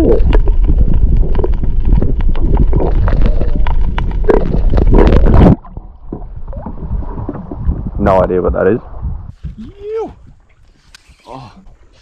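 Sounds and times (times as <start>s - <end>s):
underwater rumble and sloshing: 0.0s - 12.0s.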